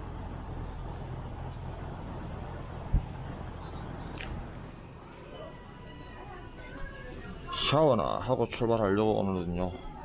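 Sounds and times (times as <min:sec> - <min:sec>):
diesel trucks idling: 0:00.0 - 0:05.9.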